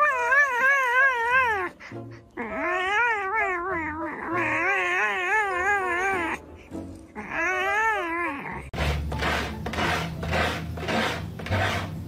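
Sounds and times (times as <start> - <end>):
cat yowling: 0.0 - 1.8, 2.4 - 6.4, 7.2 - 8.8.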